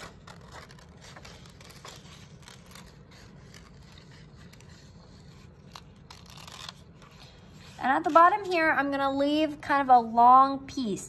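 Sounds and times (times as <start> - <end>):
scissors snipping paper: 0.0 - 8.4.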